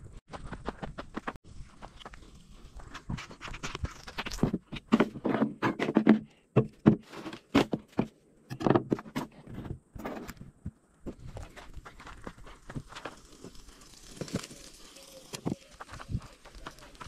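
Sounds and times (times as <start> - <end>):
footsteps: 0.3 - 8.1, 9.2 - 17.0.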